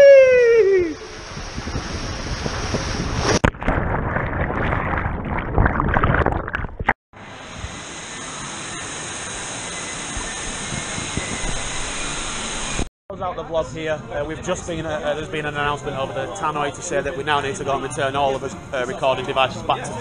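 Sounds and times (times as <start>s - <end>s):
splash into pool: 2.0s - 6.9s
muffled underwater bubbling: 3.5s - 6.9s.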